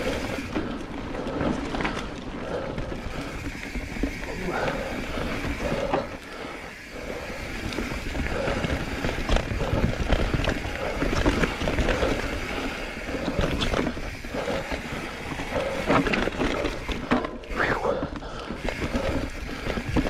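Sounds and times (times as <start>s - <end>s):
bike knocking and rattling: 0.0s - 20.0s
bike tyres rumbling on dirt: 0.0s - 20.0s.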